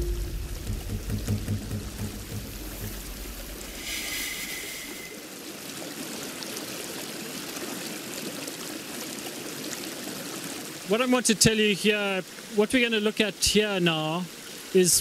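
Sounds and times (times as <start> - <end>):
river water over stones: 0.0 - 15.0.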